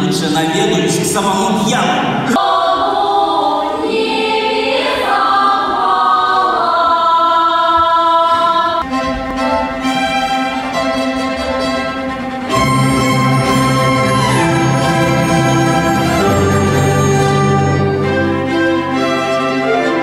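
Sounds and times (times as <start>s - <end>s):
choir singing: 2.1s - 20.0s
orchestral bowed strings: 8.8s - 20.0s.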